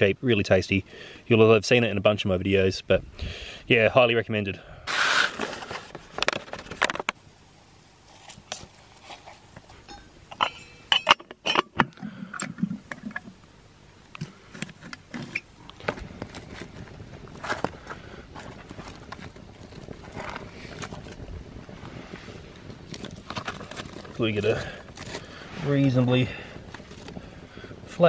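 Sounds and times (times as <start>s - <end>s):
camp cooking gear clinking: 8.4s - 13.4s.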